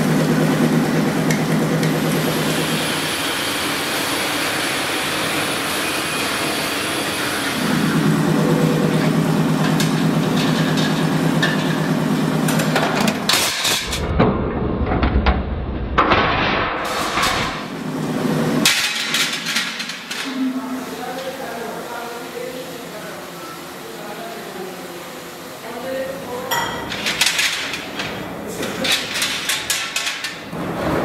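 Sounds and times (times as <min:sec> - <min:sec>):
machines droning: 0:00.0 - 0:15.0.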